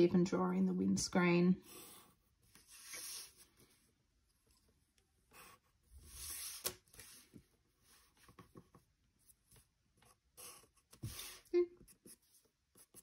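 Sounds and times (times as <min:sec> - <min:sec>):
pencil scratching on paper: 0:01.6 - 0:03.8, 0:05.2 - 0:13.0.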